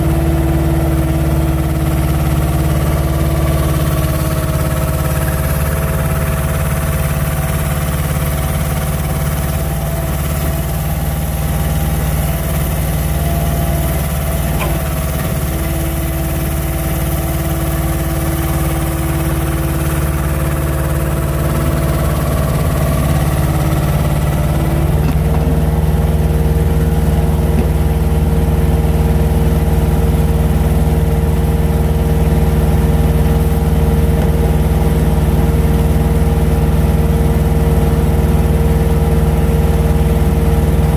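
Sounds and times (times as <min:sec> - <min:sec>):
heavy diesel engine running: 0:00.0 - 0:40.9.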